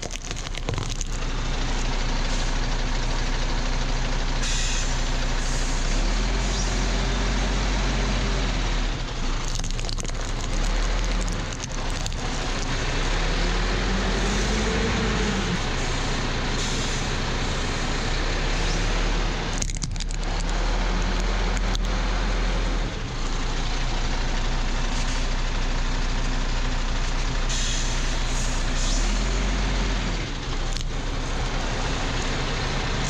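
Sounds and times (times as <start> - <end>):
truck engine running: 0.0 - 33.0.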